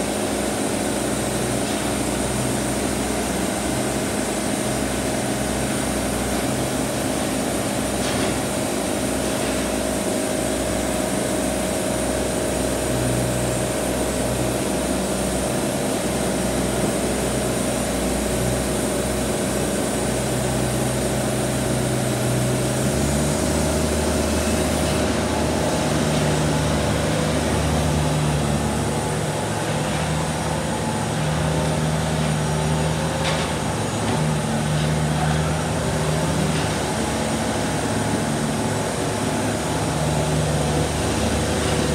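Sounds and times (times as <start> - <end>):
band sawmill cutting log: 20.3 - 41.9.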